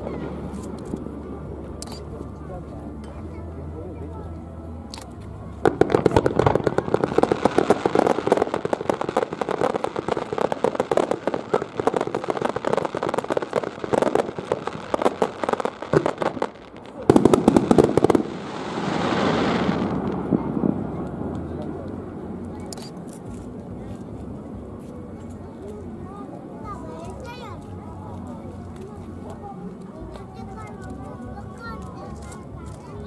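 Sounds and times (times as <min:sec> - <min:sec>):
fireworks crackling and popping: 0:00.0 - 0:02.2, 0:04.9 - 0:33.0
loud firework bangs: 0:05.6 - 0:21.3
even rushing noise: 0:05.6 - 0:23.1.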